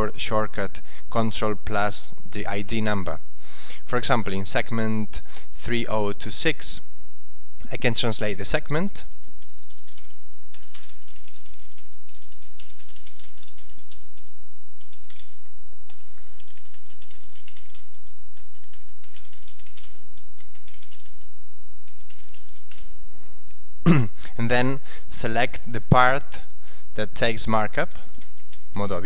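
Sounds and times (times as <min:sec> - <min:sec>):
typing on computer keyboard: 0:09.2 - 0:22.9, 0:28.1 - 0:28.7.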